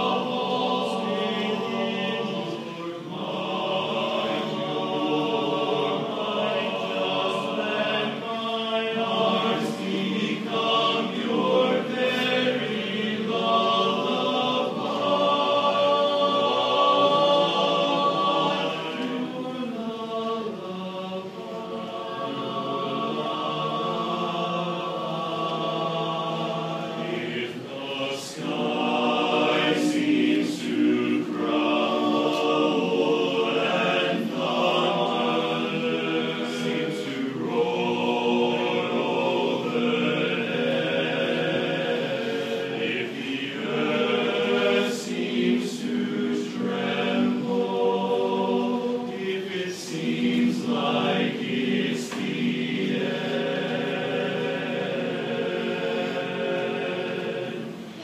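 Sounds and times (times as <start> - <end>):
men's chorus singing a cappella: 0.0 - 58.0.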